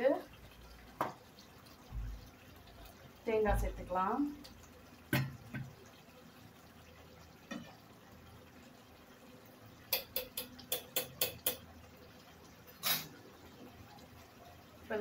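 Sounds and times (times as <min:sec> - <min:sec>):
pot simmering hiss: 0:00.0 - 0:15.0.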